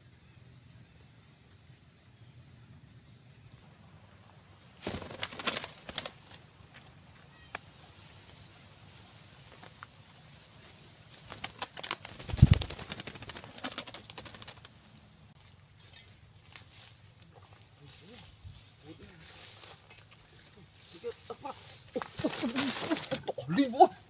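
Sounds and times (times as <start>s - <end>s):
bird wings flapping: 4.6s - 6.9s, 10.6s - 15.0s, 21.4s - 23.4s.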